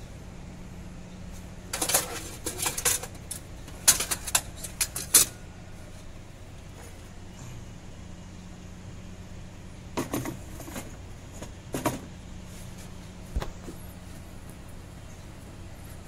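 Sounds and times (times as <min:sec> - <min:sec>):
steady low hum: 0:00.0 - 0:16.0
metal tools clinking: 0:01.7 - 0:05.4.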